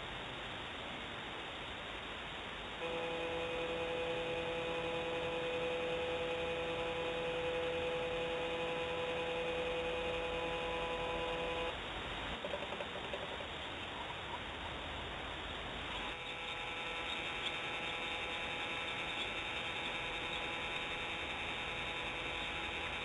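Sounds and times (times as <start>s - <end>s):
steady hiss: 0.0s - 23.0s
camera motor whining: 2.8s - 11.8s, 15.9s - 23.0s.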